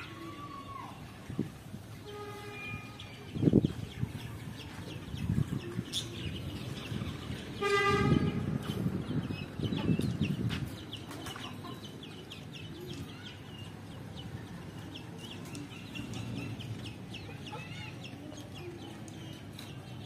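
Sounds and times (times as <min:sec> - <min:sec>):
street noise: 0:00.0 - 0:20.0
small birds chirping: 0:02.8 - 0:20.0
chickens clucking: 0:09.6 - 0:13.1, 0:15.4 - 0:18.6.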